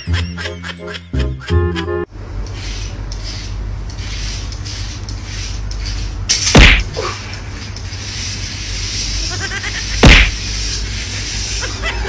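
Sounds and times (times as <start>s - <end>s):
steady hiss: 2.6s - 12.0s
loud sudden thump: 6.6s - 6.9s, 10.0s - 10.4s.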